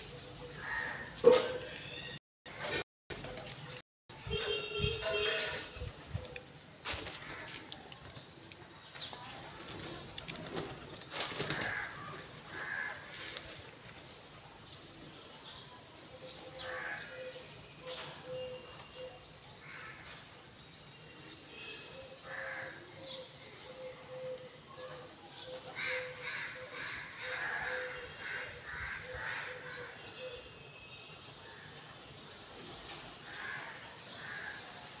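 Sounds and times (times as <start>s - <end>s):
birds shuffling: 4.5s - 14.2s.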